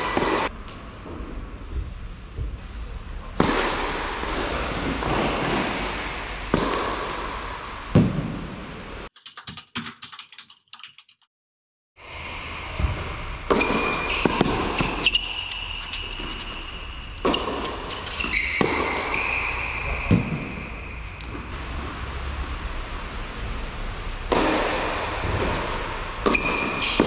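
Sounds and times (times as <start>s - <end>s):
tennis ball racket hits: 3.4s - 8.4s, 13.5s - 19.2s
typewriter-style clicks: 9.1s - 11.3s
shoes squeaking on court: 13.5s - 20.9s, 26.2s - 27.0s.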